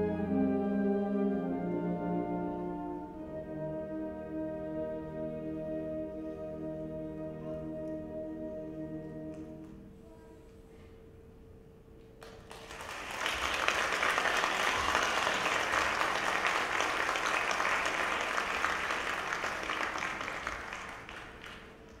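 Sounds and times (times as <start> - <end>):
audience applauding: 12.2 - 22.0.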